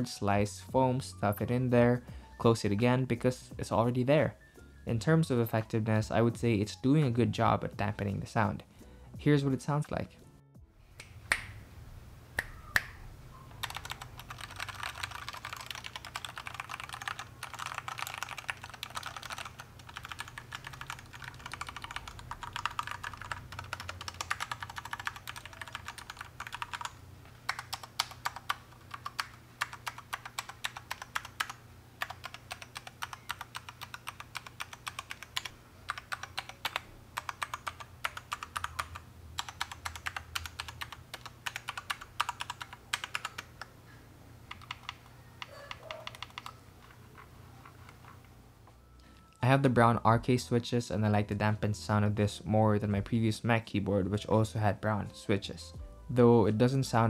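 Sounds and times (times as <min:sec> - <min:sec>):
mechanical keyboard typing: 0:13.6 - 0:43.7, 0:44.5 - 0:48.2.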